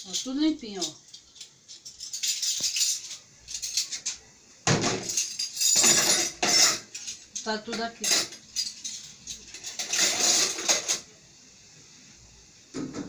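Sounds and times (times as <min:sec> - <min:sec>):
dishes clattering: 0:00.8 - 0:11.0.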